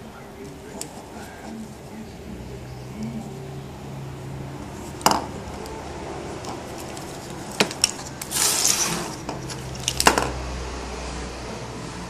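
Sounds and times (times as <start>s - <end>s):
wires clicking on wooden table: 6.4s - 10.4s
scraping rustle: 6.5s - 10.0s.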